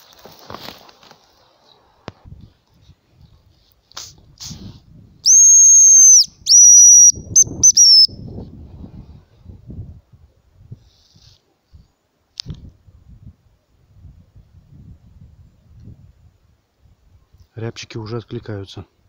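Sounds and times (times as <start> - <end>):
bird call whistles: 5.2 - 8.2.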